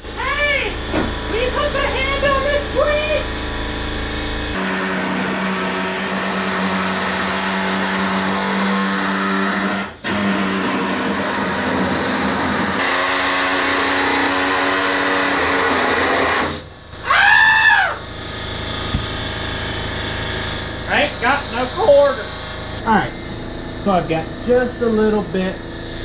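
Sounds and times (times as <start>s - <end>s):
pneumatic saw cutting sheet metal: 3.4s - 16.7s, 18.0s - 22.8s.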